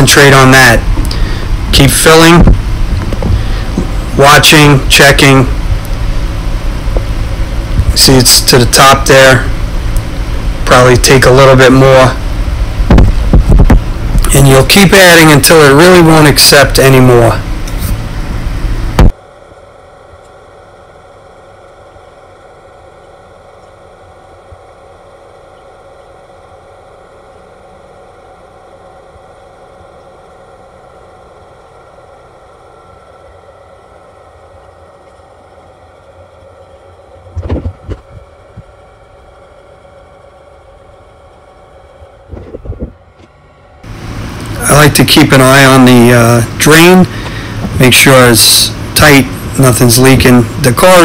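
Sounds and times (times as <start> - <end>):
car engine idling: 0.0 - 19.1, 41.4 - 51.0
short knocks and bumps: 37.3 - 38.7.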